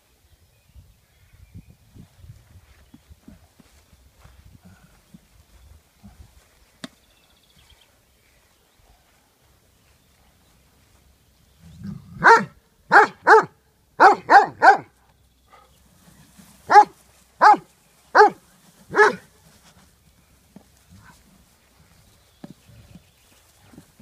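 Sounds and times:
dog barking: 0:12.2 - 0:14.9, 0:16.7 - 0:19.2.

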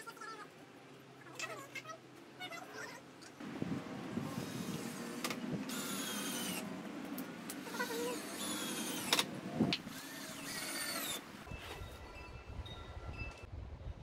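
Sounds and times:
cordless drill motor whine: 0:04.3 - 0:06.6, 0:07.6 - 0:09.3, 0:09.9 - 0:12.1.

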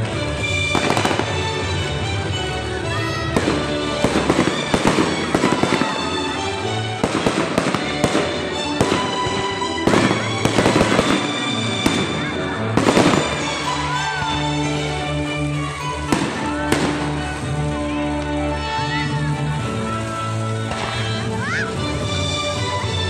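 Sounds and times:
fireworks bangs and crackling: 0:00.0 - 0:23.0
music playing: 0:00.0 - 0:23.0.

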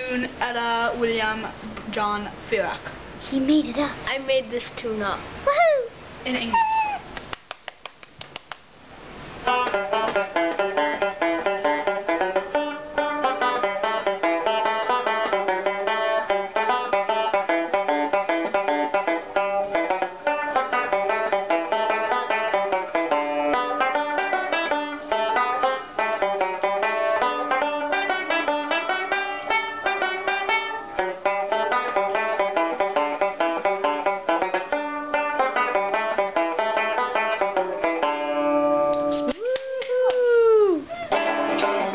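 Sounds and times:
banjo playing fast plucked notes: 0:09.4 - 0:39.3, 0:41.1 - 0:41.9.

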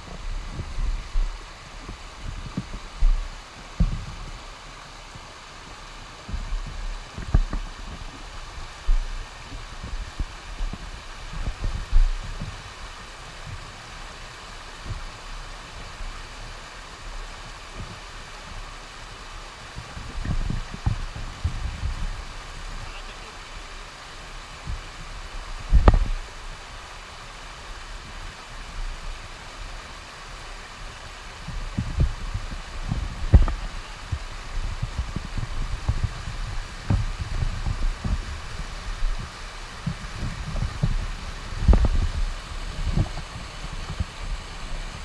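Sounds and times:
river water rushing over rapids: 0:00.0 - 0:45.0
low thumps and bumps: 0:25.6 - 0:26.2, 0:31.4 - 0:45.0.

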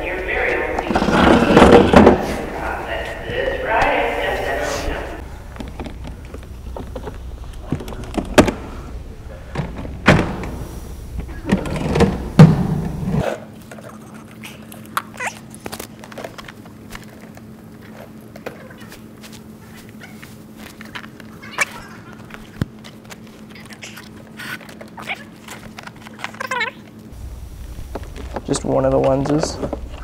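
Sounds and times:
low rumble: 0:00.0 - 0:11.5, 0:27.2 - 0:30.0
faint steady hum: 0:00.0 - 0:30.0.

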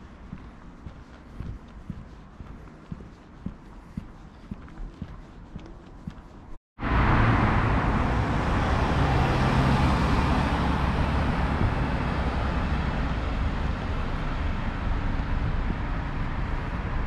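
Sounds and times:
road traffic rumble and hiss: 0:06.8 - 0:17.0.

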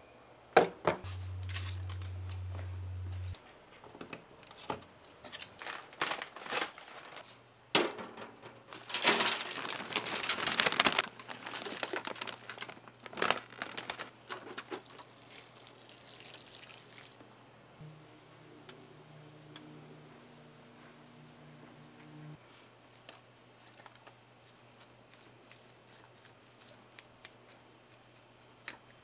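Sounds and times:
potting soil rustling: 0:01.0 - 0:03.4, 0:08.7 - 0:17.3
foil pan crinkling: 0:01.1 - 0:02.6, 0:04.6 - 0:15.6.

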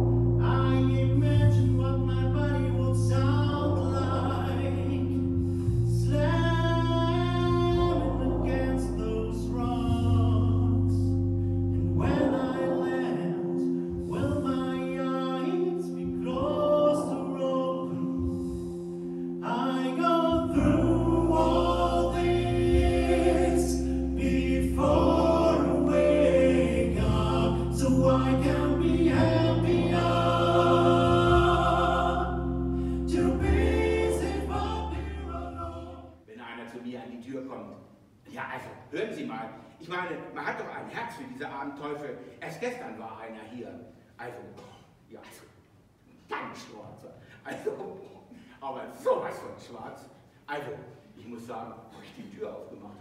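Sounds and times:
choral singing: 0:00.0 - 0:36.2
low electronic chords: 0:00.0 - 0:36.2.

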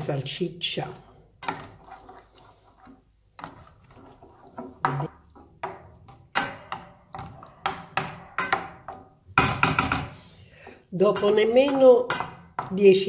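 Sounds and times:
wooden spoon scraping a frying pan: 0:00.8 - 0:13.0.

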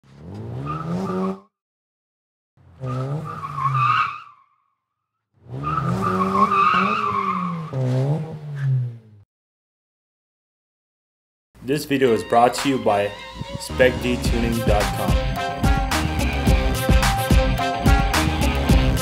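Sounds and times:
car engine revving: 0:00.0 - 0:01.4, 0:02.6 - 0:03.9, 0:05.4 - 0:09.2, 0:13.3 - 0:19.0
tyres squealing: 0:05.6 - 0:08.8.

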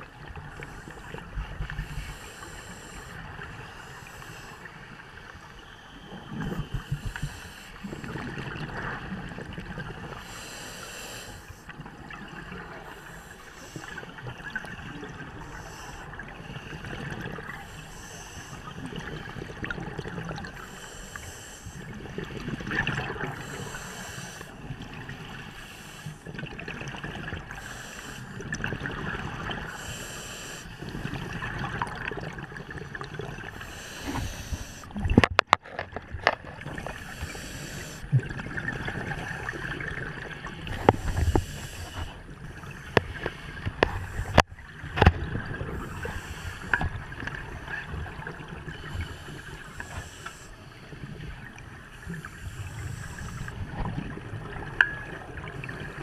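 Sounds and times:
muffled water noise: 0:00.0 - 0:56.0
diver breathing through regulator: 0:00.6 - 0:04.7, 0:06.8 - 0:08.4, 0:10.2 - 0:11.7, 0:12.8 - 0:14.2, 0:15.3 - 0:18.8, 0:20.4 - 0:21.9, 0:23.2 - 0:24.7, 0:25.3 - 0:26.3, 0:27.5 - 0:28.6, 0:29.6 - 0:31.2, 0:33.5 - 0:34.9, 0:36.8 - 0:38.2, 0:40.7 - 0:44.5, 0:45.7 - 0:46.9, 0:48.8 - 0:50.8, 0:52.1 - 0:53.7
bubbles gurgling: 0:18.7 - 0:20.6, 0:21.9 - 0:23.6, 0:30.8 - 0:35.3, 0:36.0 - 0:43.1.

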